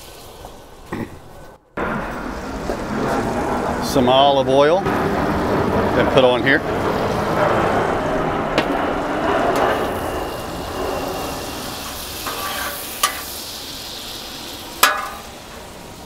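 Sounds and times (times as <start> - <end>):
butter sizzling on a griddle: 0.0 - 0.9, 9.6 - 16.0
metal spatula on griddle: 9.5 - 16.0.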